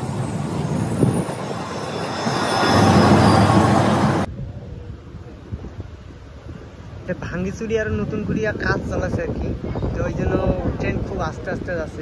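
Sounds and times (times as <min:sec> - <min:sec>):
train rumbling on rails: 0:00.0 - 0:04.3.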